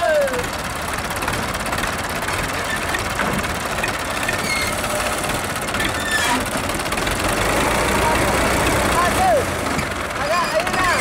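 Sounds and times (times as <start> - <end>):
tractor diesel engine idling: 0.0 - 11.0.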